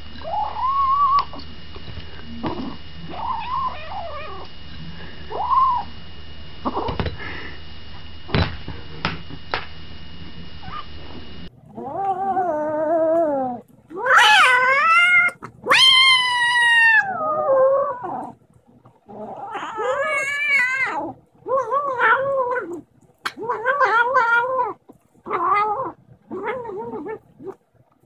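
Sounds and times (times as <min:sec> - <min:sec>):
kitten yowling: 0:00.2 - 0:01.4, 0:03.1 - 0:04.5, 0:11.8 - 0:18.3, 0:19.4 - 0:27.2.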